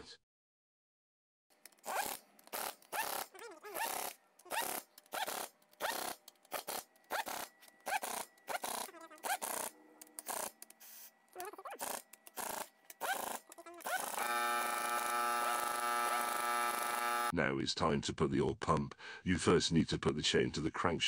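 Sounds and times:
pneumatic air gun whirring: 1.6s - 17.3s.

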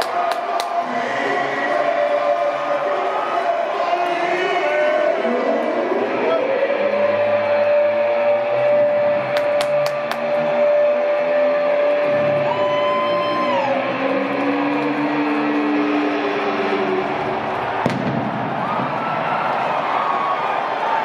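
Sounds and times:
large crowd noise: 0.0s - 21.0s.

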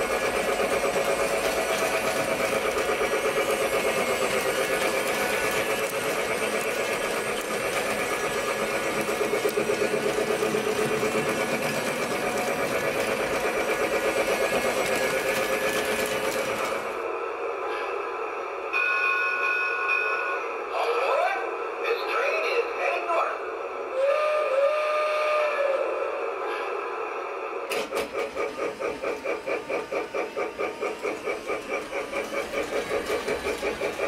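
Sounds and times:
toy train motor whirring: 0.0s - 17.0s, 27.4s - 34.0s.

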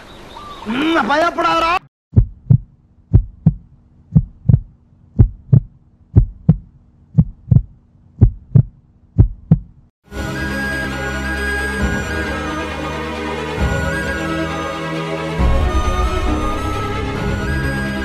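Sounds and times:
heartbeat thumps: 2.1s - 9.9s
music: 10.1s - 18.0s.

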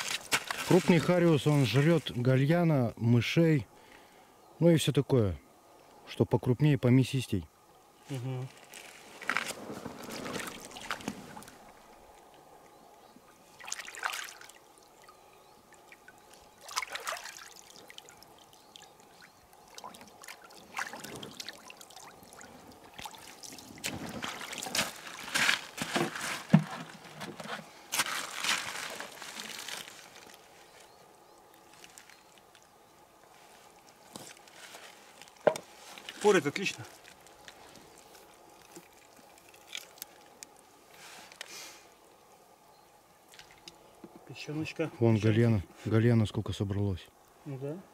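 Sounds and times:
water splashing and sloshing: 0.0s - 2.2s, 8.6s - 41.5s, 43.2s - 44.2s.

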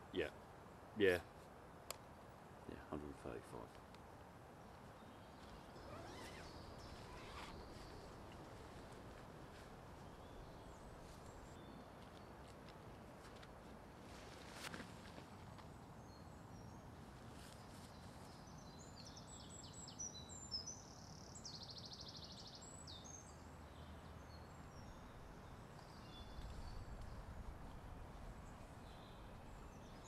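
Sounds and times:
background hiss: 0.0s - 30.0s
songbird chirps and trill: 4.9s - 12.5s, 16.0s - 30.0s.

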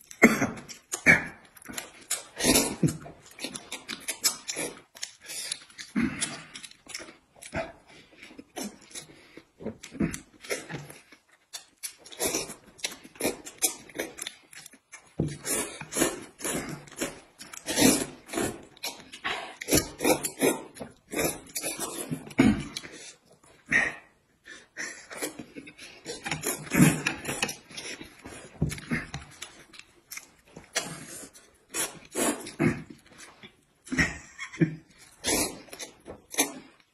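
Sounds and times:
people slurping noodles: 15.3s - 29.5s, 30.7s - 33.0s, 35.1s - 36.8s.

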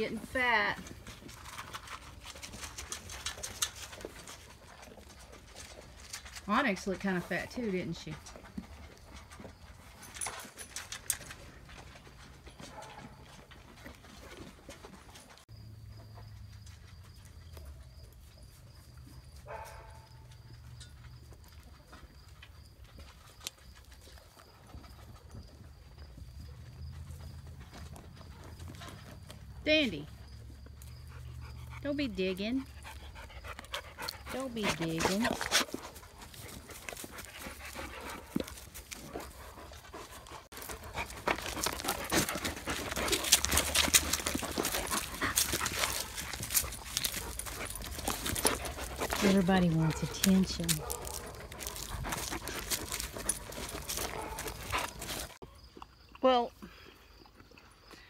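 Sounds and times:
large dog panting: 30.7s - 55.4s
rustling: 33.4s - 55.4s
footsteps crunching on straw and leaves: 34.5s - 55.4s.

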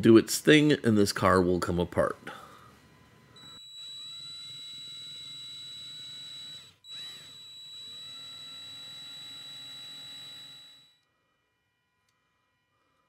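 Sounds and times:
electric drill whining: 2.4s - 11.1s.

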